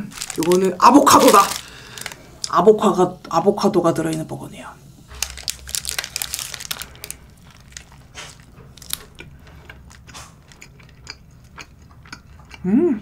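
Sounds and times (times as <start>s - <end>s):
person chewing crunchy food: 0.0s - 2.6s, 5.1s - 12.7s.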